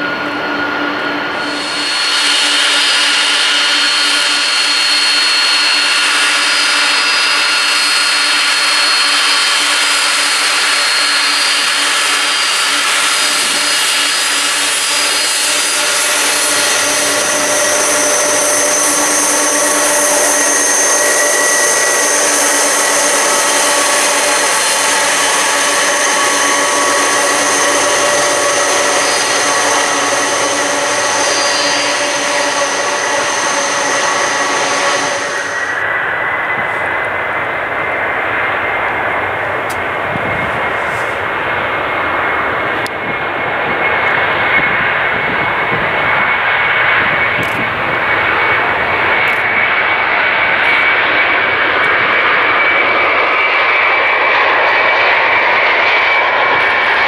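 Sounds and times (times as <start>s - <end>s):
higher jet whine: 0.0s - 57.0s
jet engines whining: 0.0s - 57.0s.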